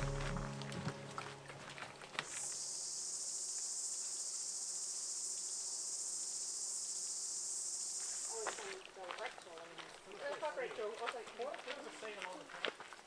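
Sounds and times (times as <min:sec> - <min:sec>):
high-pitched insect chorus: 0:02.1 - 0:09.9.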